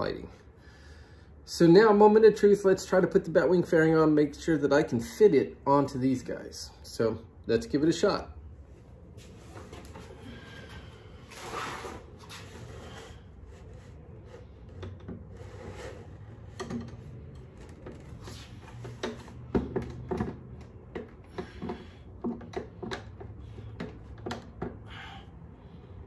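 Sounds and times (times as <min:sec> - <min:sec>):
rustle and scrape: 0:09.2 - 0:19.4
fairing knocking against brackets: 0:18.8 - 0:25.0.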